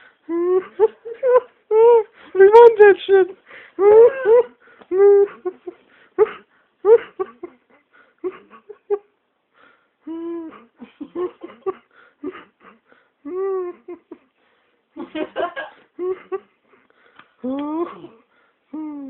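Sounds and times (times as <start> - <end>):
young man laughing: 0.3 - 2.1, 3.8 - 9.1, 10.5 - 14.3, 15.0 - 16.6.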